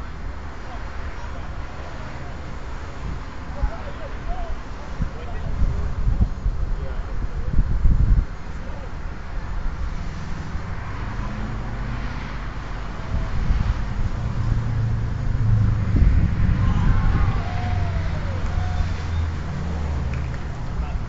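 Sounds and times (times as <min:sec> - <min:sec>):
faint distant shouts: 0:03.5 - 0:05.4, 0:16.5 - 0:19.4
low outdoor rumble: 0:11.5 - 0:21.0.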